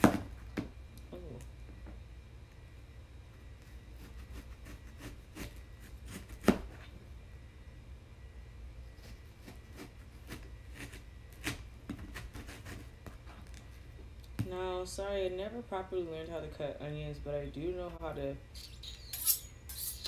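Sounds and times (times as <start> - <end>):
knife chopping onion: 3.9 - 6.8, 9.0 - 13.3.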